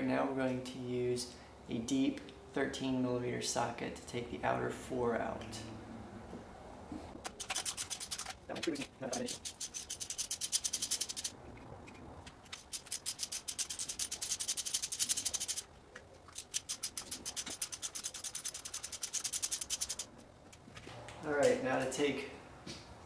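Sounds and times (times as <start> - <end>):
socket ratchet clicking: 16.4 - 20.1.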